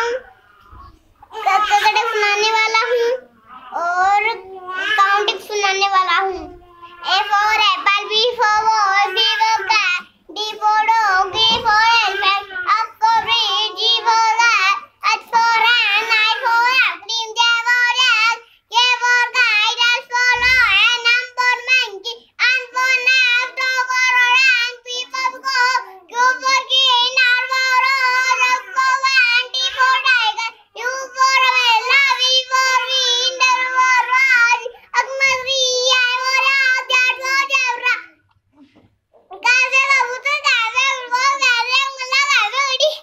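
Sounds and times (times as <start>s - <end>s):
boy chanting: 0.0s - 38.3s, 39.2s - 43.0s.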